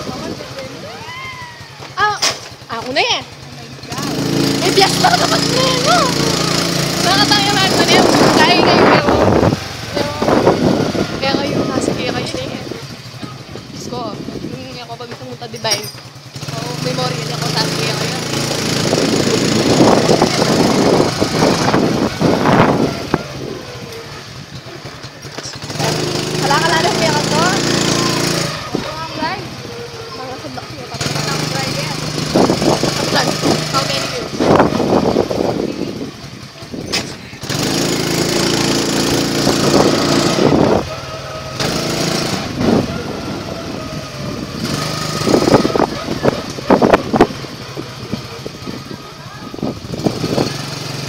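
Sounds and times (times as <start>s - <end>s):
scooter engine pulse: 0.0s - 51.0s
loud rushing noise: 17.6s - 24.4s, 37.0s - 51.0s.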